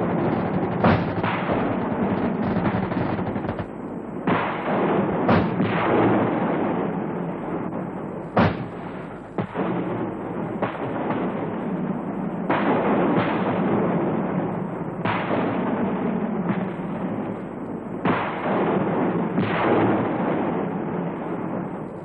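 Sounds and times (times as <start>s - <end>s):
heavy blasts: 0.0s - 3.9s
continuous gunfire: 0.0s - 22.0s.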